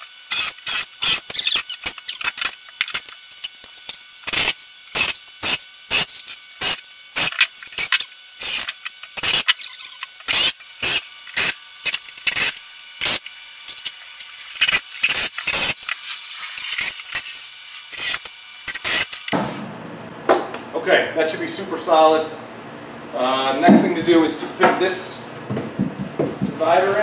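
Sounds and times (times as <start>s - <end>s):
cordless drill driving screws: 4.3s - 16.0s, 17.9s - 19.3s.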